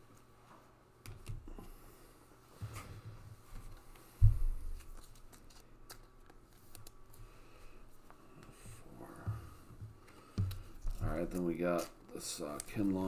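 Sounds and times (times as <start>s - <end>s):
cards handled on a tabletop: 3.5s - 7.4s, 9.4s - 13.0s.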